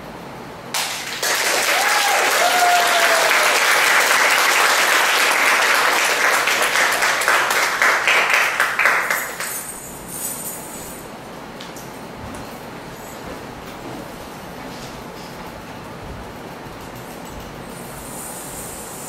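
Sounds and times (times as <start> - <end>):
audience applauding: 0.7 - 9.7
person cheering: 1.6 - 3.9.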